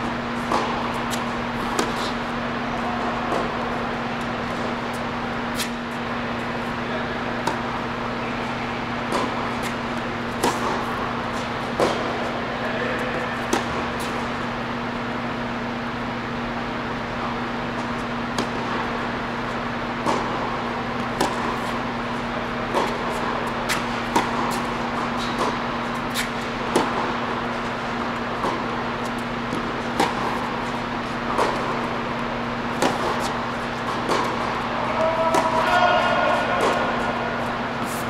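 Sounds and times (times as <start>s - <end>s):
steady hum: 0.0s - 38.0s
tennis ball struck and bouncing: 0.4s - 2.1s, 7.4s - 8.1s, 8.9s - 12.2s, 13.4s - 14.2s, 18.2s - 19.1s, 20.0s - 22.0s, 22.6s - 34.7s, 35.3s - 36.9s.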